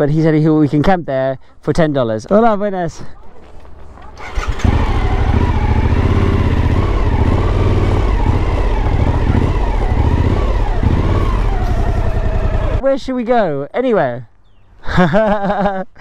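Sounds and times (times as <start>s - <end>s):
motorcycle engine at low revs: 4.1s - 12.8s.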